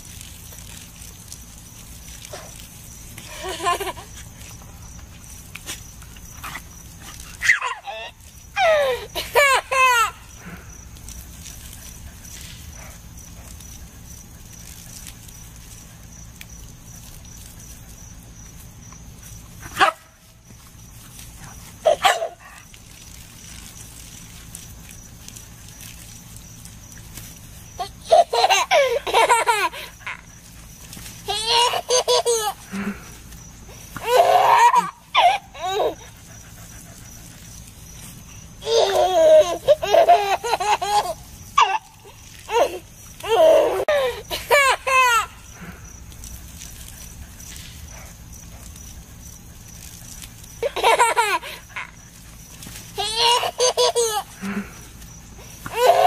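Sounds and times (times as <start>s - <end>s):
baby laughing: 3.3s - 4.1s, 7.4s - 10.3s, 27.8s - 30.3s, 31.3s - 32.7s, 34.0s - 36.1s, 38.6s - 45.4s, 50.6s - 52.0s, 53.0s - 54.4s, 55.7s - 56.0s
dog barking: 19.7s - 20.1s, 21.9s - 22.4s.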